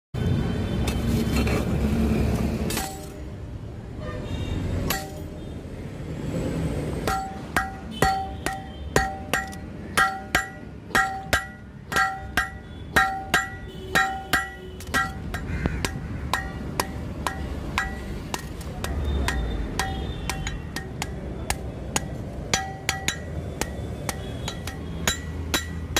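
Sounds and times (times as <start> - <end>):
hammer clanging on anvil: 4.9 - 5.3, 7.0 - 25.9.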